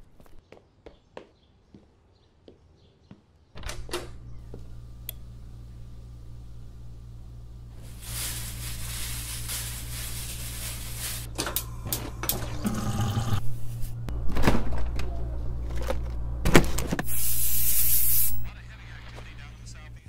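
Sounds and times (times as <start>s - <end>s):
low hum: 3.9s - 17.0s.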